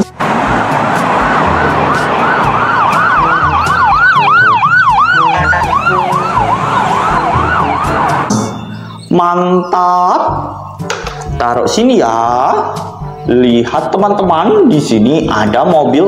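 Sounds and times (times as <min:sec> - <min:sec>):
second siren pattern: 0:00.2 - 0:09.0
toy electronic siren wailing: 0:01.2 - 0:08.3.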